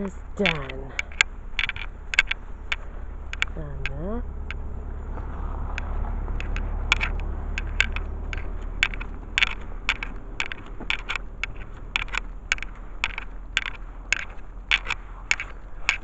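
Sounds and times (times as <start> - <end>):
footsteps: 0.0 - 16.0
low rumble: 0.0 - 16.0
camera handling clicks: 5.8 - 16.0.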